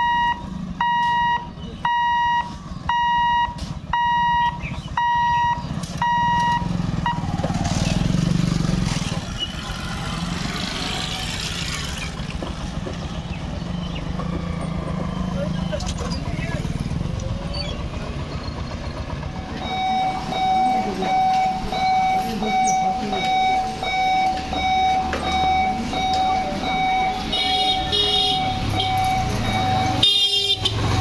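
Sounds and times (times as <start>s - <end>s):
level crossing warning buzzer beeping: 0.0s - 7.3s, 19.6s - 30.6s
motorcycles passing: 0.4s - 31.0s.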